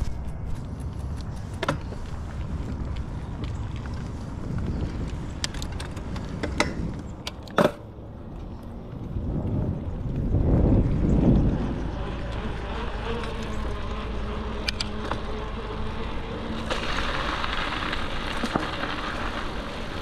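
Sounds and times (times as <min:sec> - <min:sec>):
bike tyres rumbling on dirt: 0:00.0 - 0:07.2, 0:08.2 - 0:20.0
wind on microphone: 0:00.0 - 0:07.3, 0:08.2 - 0:15.0
bike clicks and rattles: 0:00.0 - 0:20.0.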